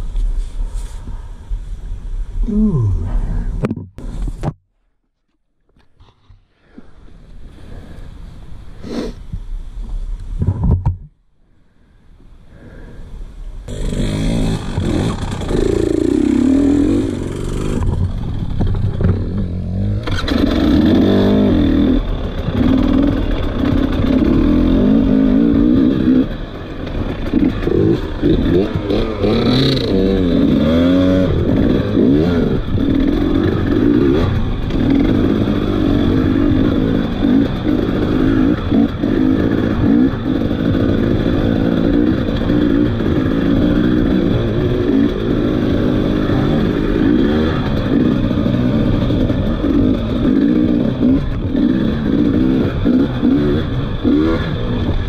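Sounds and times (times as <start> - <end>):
dirt bike engine revving: 13.7 - 55.0.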